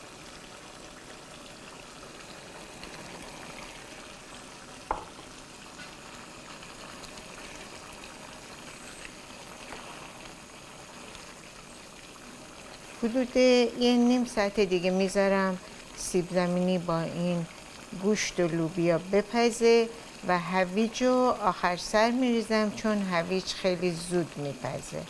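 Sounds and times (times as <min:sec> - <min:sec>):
stew simmering in a pan: 0:00.0 - 0:25.0
short knock: 0:04.9 - 0:05.1.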